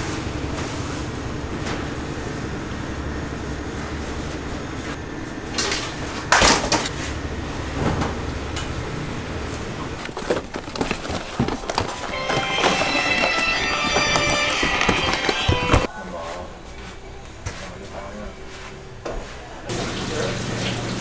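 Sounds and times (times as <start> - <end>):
utensils and containers clanking: 10.0 - 15.9.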